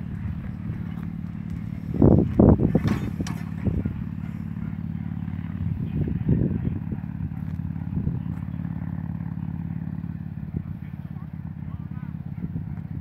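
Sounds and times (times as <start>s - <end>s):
handling noise: 0.0s - 4.3s
small engine humming: 0.0s - 13.0s.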